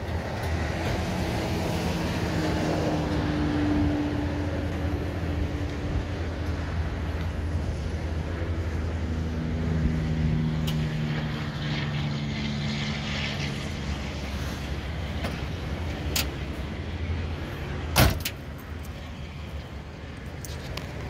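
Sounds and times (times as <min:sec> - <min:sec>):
car door thumping shut: 0:18.0 - 0:18.3.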